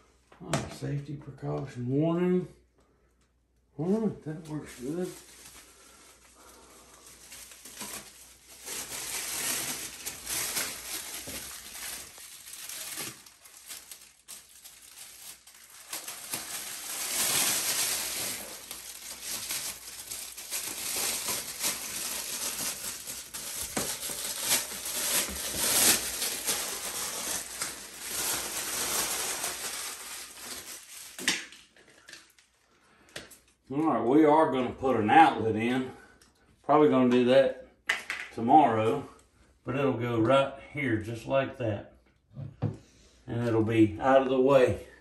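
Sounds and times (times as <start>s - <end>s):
plastic bag crinkling: 4.3s - 33.6s.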